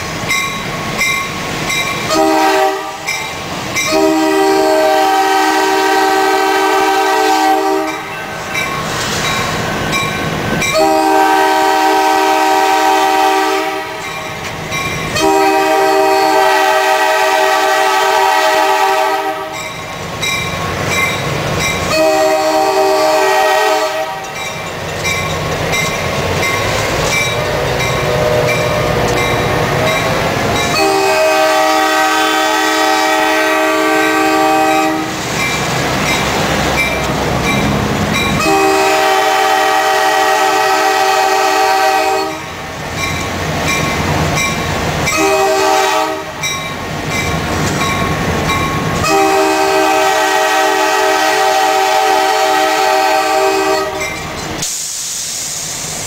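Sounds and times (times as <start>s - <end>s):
diesel locomotive rumbling: 0.0s - 56.0s
locomotive air horn blasts: 2.1s - 3.2s, 3.8s - 8.1s, 10.6s - 14.1s, 15.1s - 19.7s, 21.9s - 24.4s, 27.4s - 29.6s, 30.7s - 35.2s, 38.4s - 42.5s, 45.1s - 46.5s, 49.0s - 54.1s.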